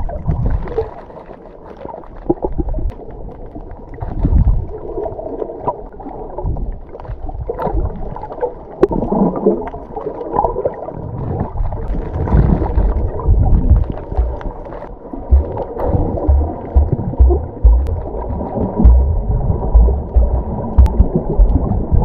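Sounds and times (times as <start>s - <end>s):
muffled underwater swishing: 11.4s - 22.0s.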